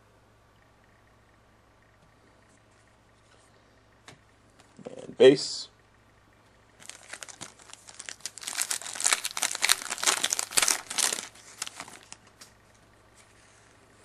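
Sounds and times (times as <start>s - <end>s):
plastic wrapper crinkling and tearing: 6.8s - 12.4s.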